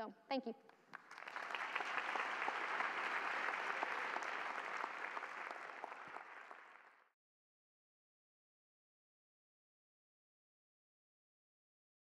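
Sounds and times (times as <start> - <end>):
audience applauding: 0.8 - 7.1.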